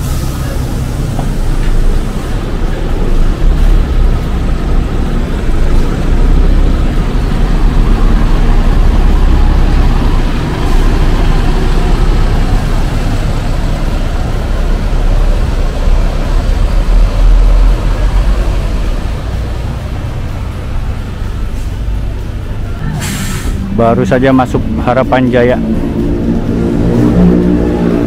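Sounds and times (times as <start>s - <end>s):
diesel coach engine rumble: 0.0s - 28.0s.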